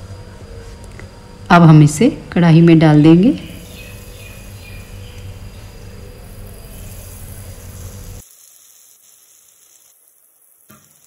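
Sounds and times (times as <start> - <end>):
food sizzling in hot oil: 3.6 - 11.0.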